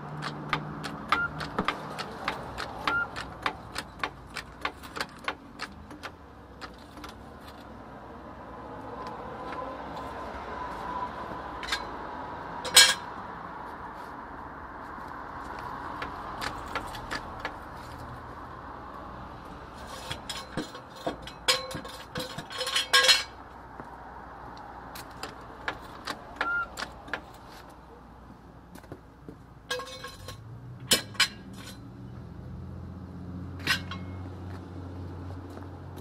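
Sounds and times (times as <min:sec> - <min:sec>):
metal tools clinking: 0:12.6 - 0:13.1, 0:19.8 - 0:23.4, 0:29.7 - 0:31.9, 0:33.6 - 0:34.3.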